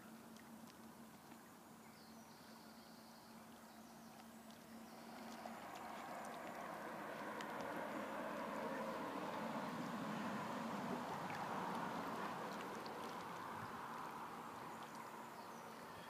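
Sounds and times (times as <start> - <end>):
faint steady hum: 0.0 - 16.0
waves lapping against rocks: 4.0 - 15.9.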